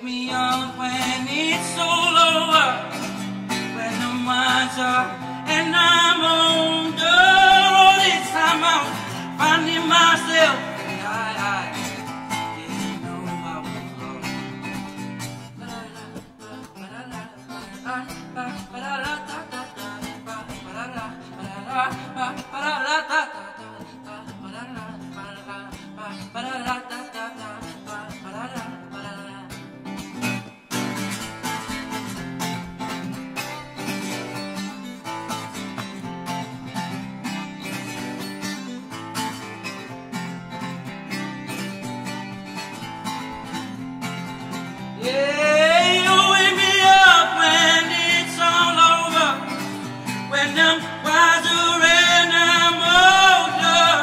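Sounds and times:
man singing: 0.0 - 29.7, 45.0 - 54.0
acoustic guitar strumming: 0.0 - 54.0.

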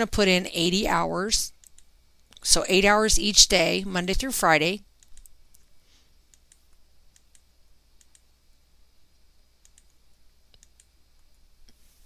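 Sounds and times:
low steady hum: 0.0 - 12.0
mouse and keyboard clicks: 9.6 - 10.9.

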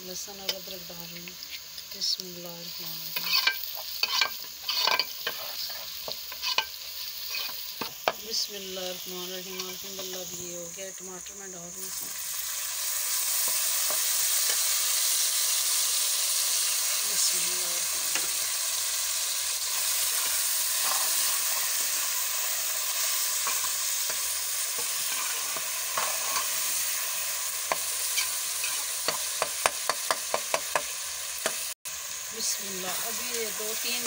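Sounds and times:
food sizzling in a pot: 0.0 - 34.0
metal ladle scraping a pot: 3.1 - 7.8.

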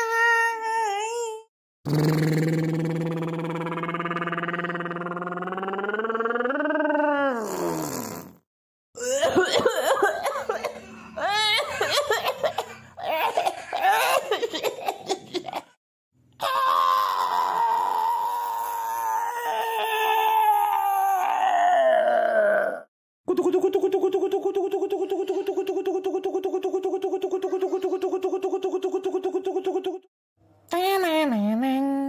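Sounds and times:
canned laughter: 9.1 - 15.8, 23.3 - 30.0.

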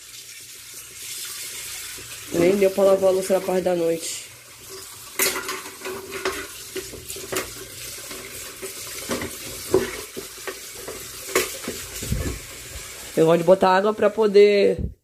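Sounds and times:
water running in sink: 0.0 - 14.8
crockery and metal clinking: 4.7 - 11.8.

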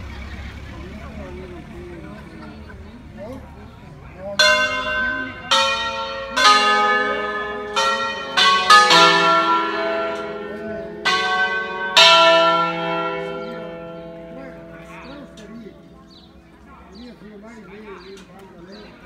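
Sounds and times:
church bells ringing: 4.3 - 17.6.

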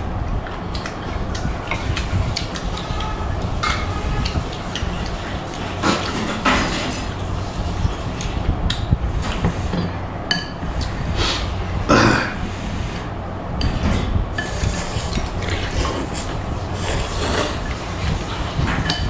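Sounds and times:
slurping noodles: 14.4 - 18.4.

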